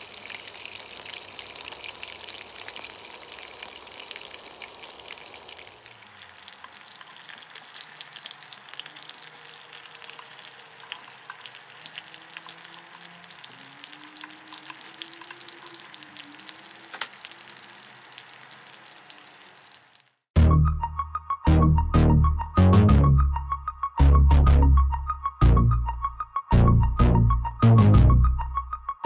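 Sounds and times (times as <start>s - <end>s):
meatballs sizzling in hot oil: 0.0s - 20.3s.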